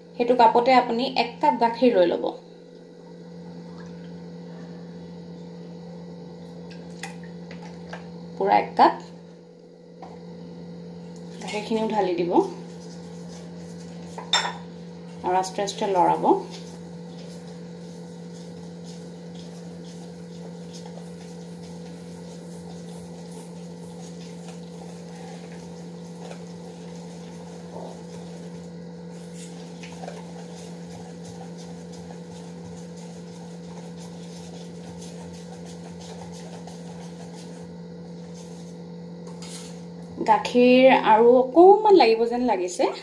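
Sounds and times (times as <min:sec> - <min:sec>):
steady low hum: 0:00.0 - 0:43.0
whisk scraping batter in steel bowl: 0:11.2 - 0:39.9.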